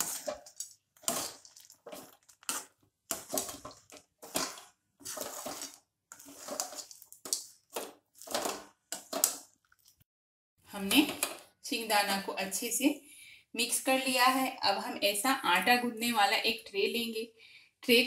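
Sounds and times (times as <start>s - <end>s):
metal ladle scraping through syrup: 0.0s - 9.8s.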